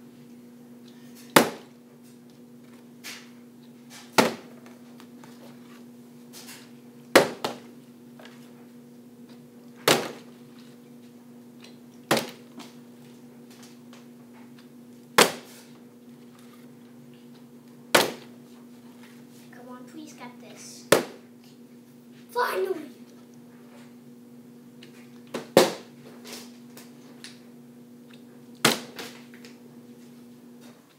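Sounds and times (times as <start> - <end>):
faint steady hum: 0.0 - 30.9
plastic bottle landing knocks: 4.2 - 4.5, 9.9 - 10.2, 18.0 - 18.3.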